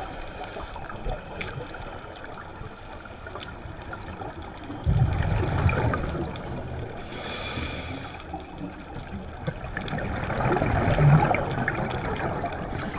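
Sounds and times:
exhaled bubbles gurgling underwater: 0.0s - 12.9s
regulator hiss: 7.0s - 8.4s.

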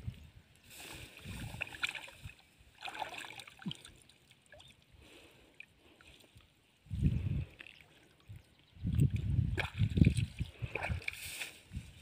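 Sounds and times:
shallow water splashing: 1.2s - 4.7s.

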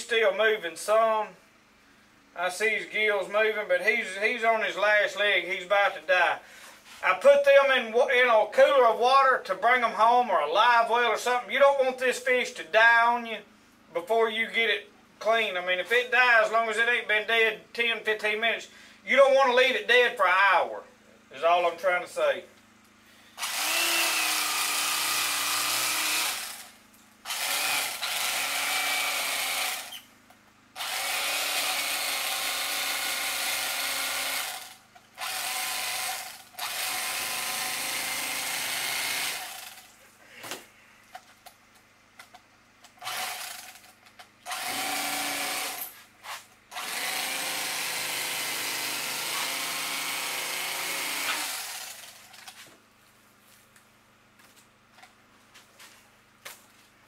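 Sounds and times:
electric knife running: 23.4s - 30.1s, 30.8s - 39.9s, 43.0s - 52.4s.

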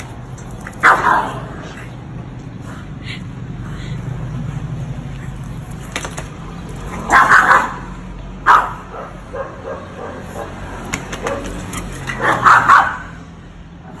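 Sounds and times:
dog barking: 0.8s - 1.4s, 7.0s - 10.6s, 11.2s - 13.2s
dog yipping: 7.1s - 7.8s, 12.1s - 13.1s.

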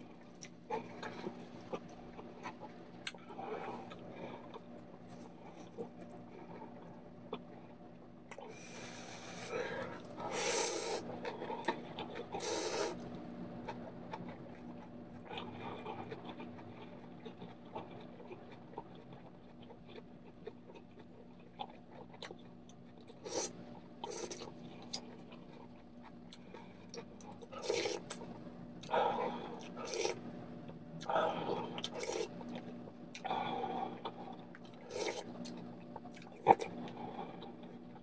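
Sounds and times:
steady low hum: 0.0s - 38.0s
chewing with wet mouth clicks: 0.2s - 3.2s, 11.2s - 23.2s, 34.0s - 37.9s
person slurping noodles: 10.3s - 11.0s, 12.4s - 13.0s, 27.6s - 28.1s, 29.2s - 30.2s, 31.2s - 32.3s, 34.9s - 35.3s.

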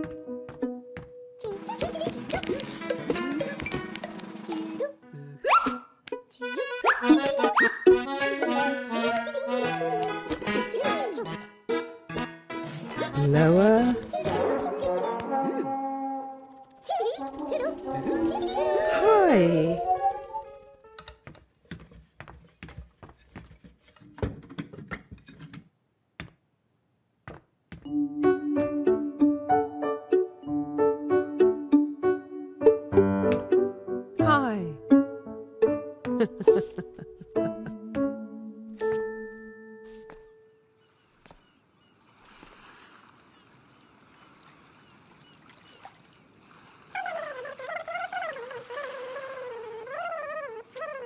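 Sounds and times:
footsteps on wooden floor: 0.0s - 1.2s, 21.2s - 26.4s, 27.2s - 27.9s, 36.0s - 38.2s, 38.8s - 39.2s
warbling call: 16.4s - 20.7s, 46.9s - 51.0s
water lapping at shore: 40.8s - 51.0s.

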